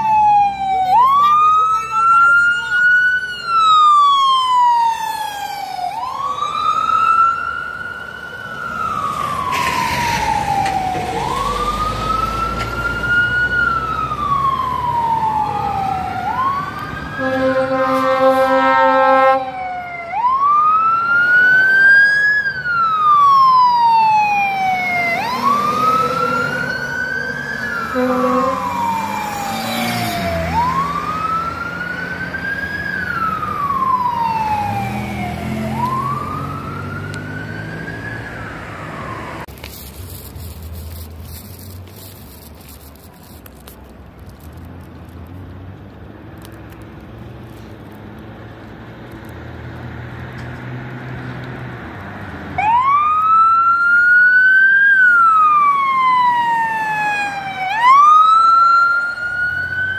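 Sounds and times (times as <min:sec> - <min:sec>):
emergency siren wailing: 0:00.0 - 0:39.5, 0:52.2 - 0:59.9
horn blast: 0:17.2 - 0:19.6, 0:27.9 - 0:28.8.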